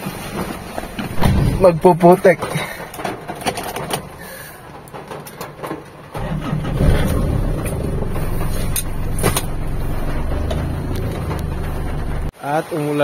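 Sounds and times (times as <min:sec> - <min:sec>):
truck engine running: 0:06.0 - 0:12.3.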